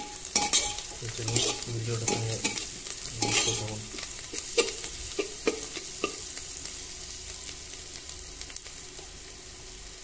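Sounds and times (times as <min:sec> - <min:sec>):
onions sizzling in hot oil: 0:00.0 - 0:10.0
spatula scraping a metal pot: 0:00.4 - 0:02.6, 0:03.2 - 0:03.8.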